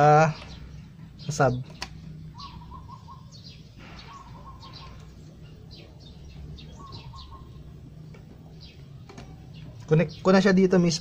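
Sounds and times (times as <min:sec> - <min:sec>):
small birds chirping: 0:00.0 - 0:11.0
low warbling bird notes: 0:02.2 - 0:08.0.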